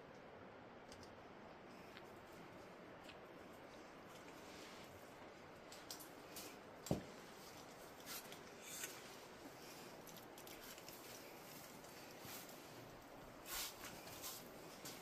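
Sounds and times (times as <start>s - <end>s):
low steady hiss: 0.0s - 15.0s.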